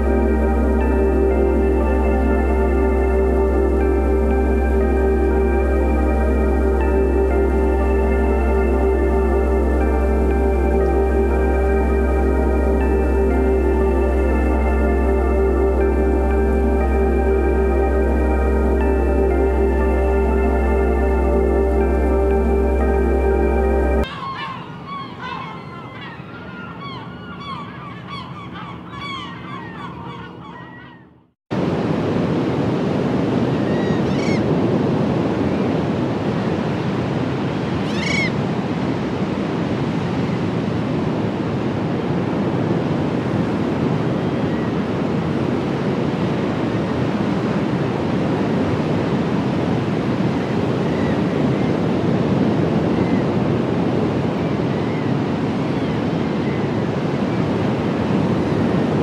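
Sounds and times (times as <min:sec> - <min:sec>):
music: 0:00.0 - 0:24.1
seabird calling: 0:00.0 - 0:31.3, 0:33.6 - 0:34.6, 0:37.8 - 0:38.4, 0:50.7 - 0:51.9, 0:54.3 - 0:57.6.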